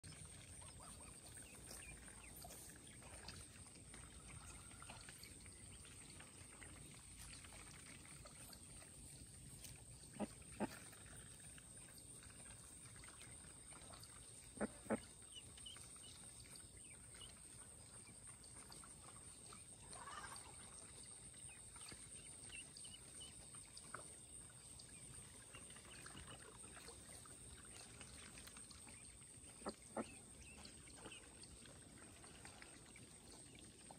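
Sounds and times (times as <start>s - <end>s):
goose or duck call: 10.1s - 11.1s, 14.6s - 15.1s, 19.9s - 20.5s.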